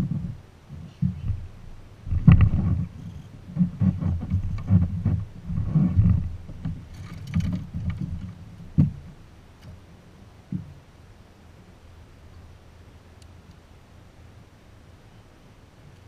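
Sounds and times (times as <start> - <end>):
light rattle: 0.0 - 9.8
thuds and knocks on boat deck: 2.1 - 2.9, 3.5 - 9.2.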